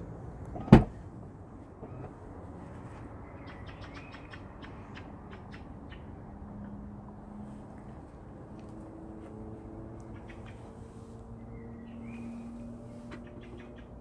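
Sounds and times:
tailgate latch clunk: 0:00.6 - 0:00.9.

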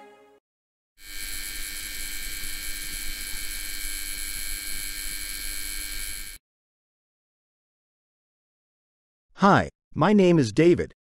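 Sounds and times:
electrical buzz: 0:01.0 - 0:06.4.

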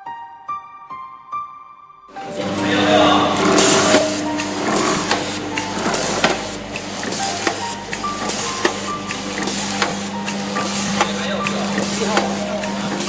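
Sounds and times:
packing machine humming: 0:02.1 - 0:13.0
machine mechanism clicking and knocking: 0:03.4 - 0:13.0.

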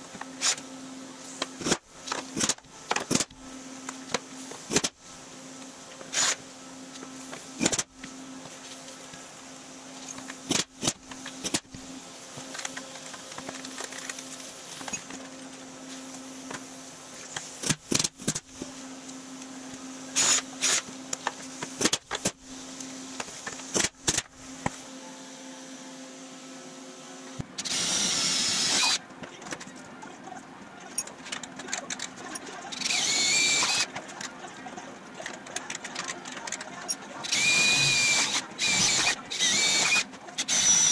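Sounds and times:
steady hum: 0:00.0 - 0:40.9
power drill bursts: 0:20.2 - 0:20.8, 0:27.6 - 0:29.0, 0:32.7 - 0:33.9, 0:37.2 - 0:40.9.

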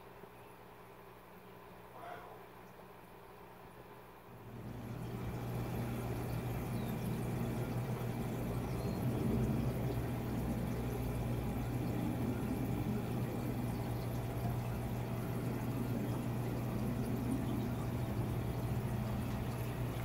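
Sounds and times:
low even hum: 0:00.0 - 0:20.0
water running: 0:04.4 - 0:20.0.

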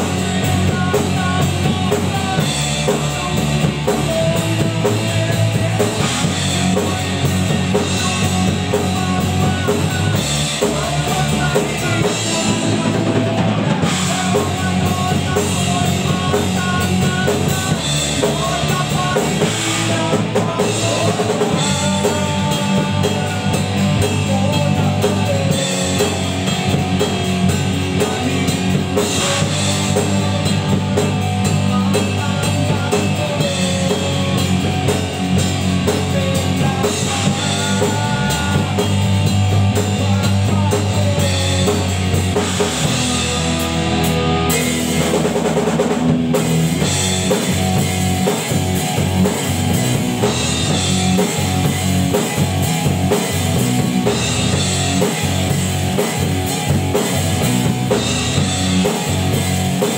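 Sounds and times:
drum kit: 0:00.0 - 0:59.9
electric bass guitar: 0:00.0 - 0:59.9
electric guitar: 0:00.0 - 0:59.9.

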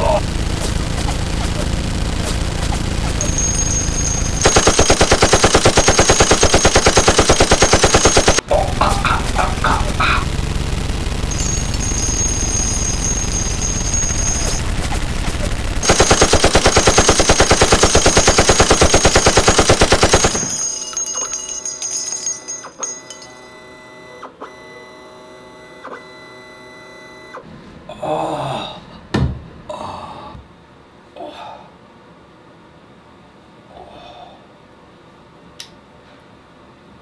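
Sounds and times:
machine-gun fire: 0:00.0 - 0:22.2
man groaning and gasping: 0:27.9 - 0:29.0, 0:29.7 - 0:30.4.

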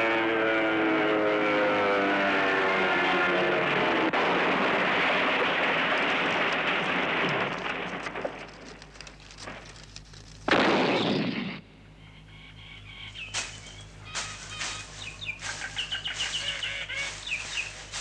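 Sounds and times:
loud explosion: 0:03.7 - 0:08.7, 0:10.4 - 0:11.7
faint crackling: 0:05.4 - 0:10.8.

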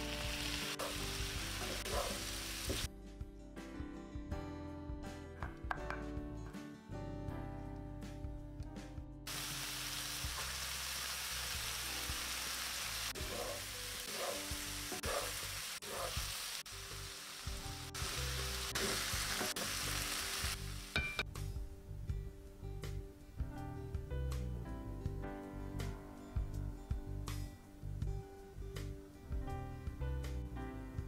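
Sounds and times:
mushrooms sizzling in a skillet: 0:00.0 - 0:02.9, 0:09.3 - 0:21.3.

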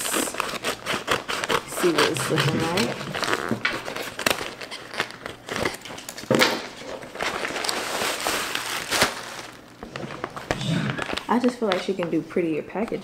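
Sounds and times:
scissors cutting paper: 0:00.0 - 0:06.2
paper bag crinkling: 0:00.0 - 0:12.0.

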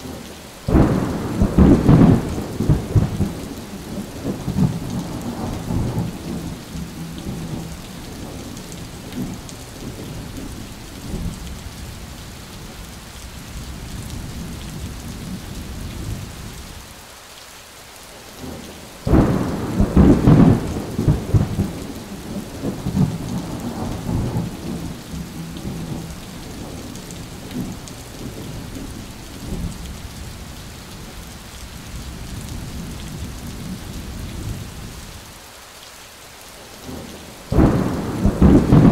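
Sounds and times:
thunder rumbling: 0:00.0 - 0:11.8, 0:19.1 - 0:30.6, 0:36.8 - 0:38.9
steady rain falling: 0:00.0 - 0:38.9
loud thunderclap: 0:00.7 - 0:03.6, 0:19.1 - 0:26.9, 0:37.5 - 0:38.9.

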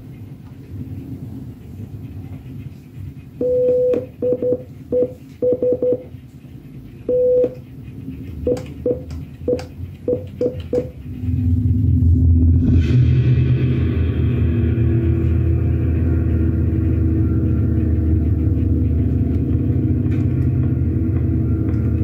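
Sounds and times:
steady low hum: 0:00.0 - 0:22.0
electronic beeps in morse pattern: 0:03.4 - 0:06.1, 0:07.1 - 0:07.7, 0:08.4 - 0:11.0.

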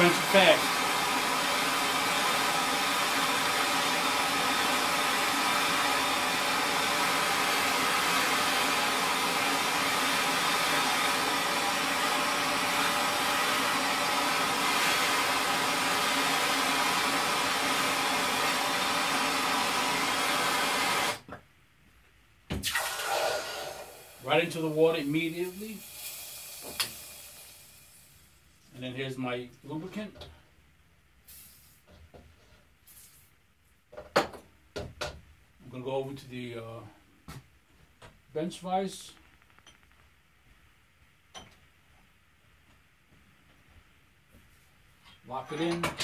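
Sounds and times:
gas torch hissing: 0:00.0 - 0:21.2, 0:22.6 - 0:28.3, 0:31.3 - 0:31.9.

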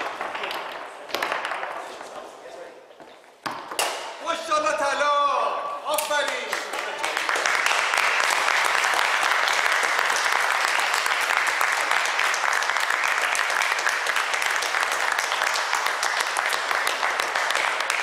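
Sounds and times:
audience applauding: 0:06.2 - 0:18.0.

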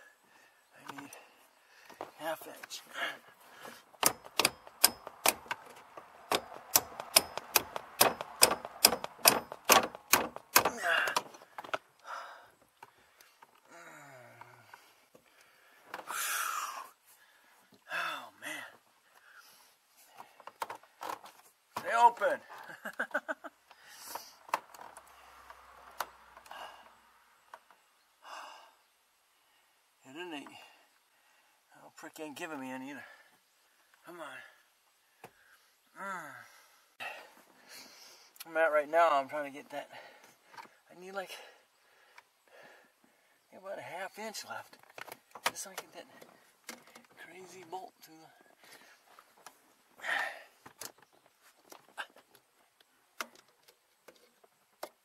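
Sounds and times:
person breathing: 0:00.0 - 0:02.2, 0:02.8 - 0:04.0, 0:10.8 - 0:20.5, 0:23.7 - 0:25.7, 0:26.4 - 0:27.3, 0:28.2 - 0:30.0, 0:34.5 - 0:38.4, 0:41.4 - 0:43.5, 0:50.0 - 0:50.6
hammer striking metal: 0:04.0 - 0:05.4, 0:06.3 - 0:10.7
metallic clicks of hand tools: 0:04.0 - 0:11.4.

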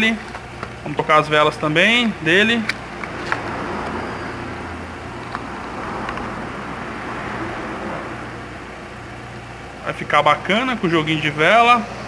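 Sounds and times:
low vehicle rumble: 0:02.8 - 0:09.9.

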